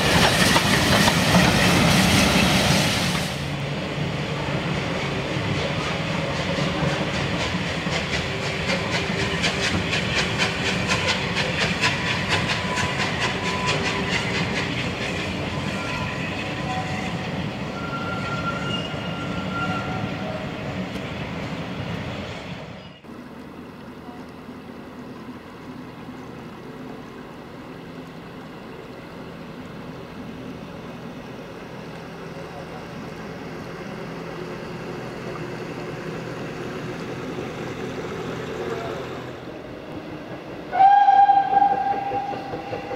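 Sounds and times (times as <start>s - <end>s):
steam locomotive beats: 0.0s - 3.7s, 4.8s - 19.6s, 39.9s - 42.9s
train rumble: 0.0s - 42.9s.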